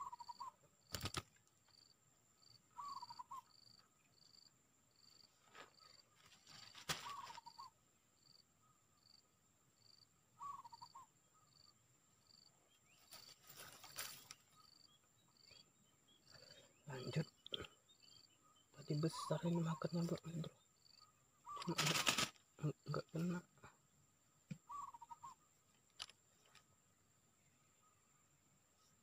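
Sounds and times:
warbling bird call: 0:00.0 - 0:00.6, 0:02.8 - 0:03.6, 0:06.9 - 0:07.7, 0:10.4 - 0:11.1, 0:21.4 - 0:22.3, 0:24.6 - 0:25.4
insect chirping: 0:00.0 - 0:29.0.

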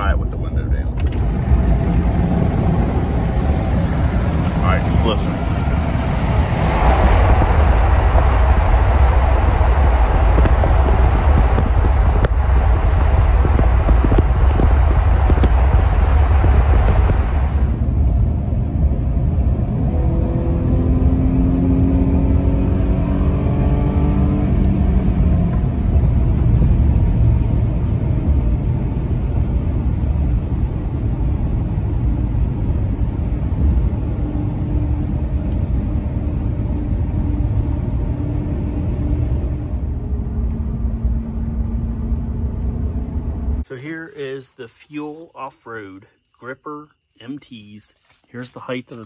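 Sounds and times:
tire road noise rumble: 0:00.0 - 0:45.5
faint hum sliding in pitch: 0:01.1 - 0:43.7.

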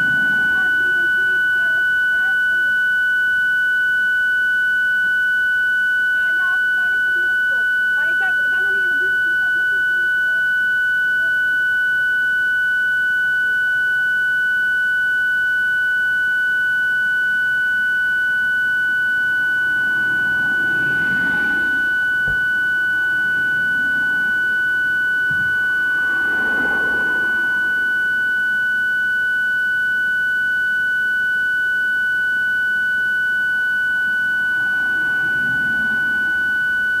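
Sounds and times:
high-pitched electronic tone: 0:00.0 - 0:37.0
faint swells of noise: 0:18.7 - 0:29.4, 0:33.7 - 0:37.0.

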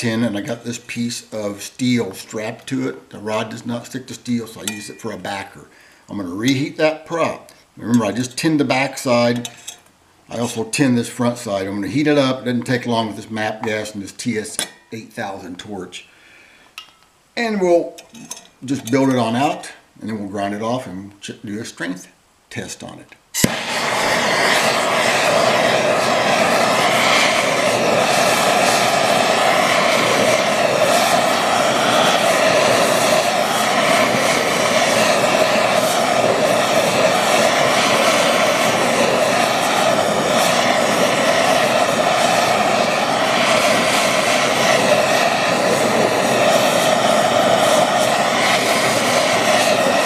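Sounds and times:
gas torch burning with loud rushing: 0:00.0 - 0:14.7, 0:23.4 - 0:50.0.

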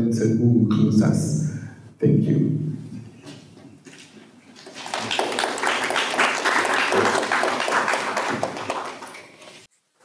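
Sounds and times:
audience clapping: 0:04.6 - 0:09.7.

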